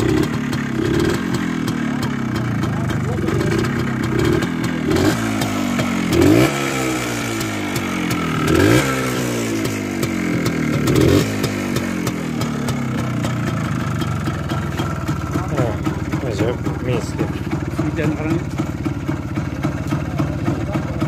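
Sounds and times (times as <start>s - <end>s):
two-stroke motorcycle engine revving: 0.0s - 21.0s.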